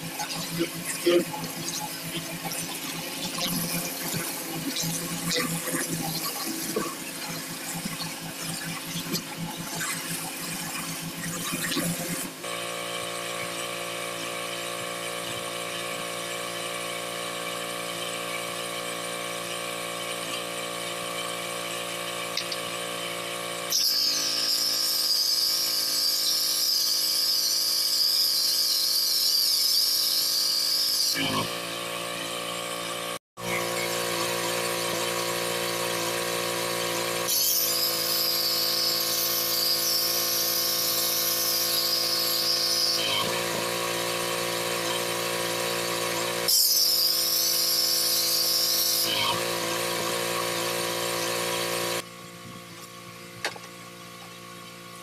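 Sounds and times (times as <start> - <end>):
high-pitched wavering whine: 0.0 - 16.4, 23.6 - 44.1
pressure washer engine running: 0.0 - 24.8, 31.1 - 55.0.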